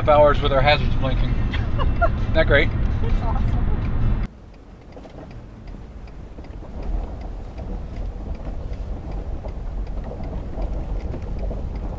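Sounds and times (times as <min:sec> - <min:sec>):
truck engine and road rumble: 0:00.0 - 0:11.9
hazard flasher ticking: 0:04.2 - 0:11.9.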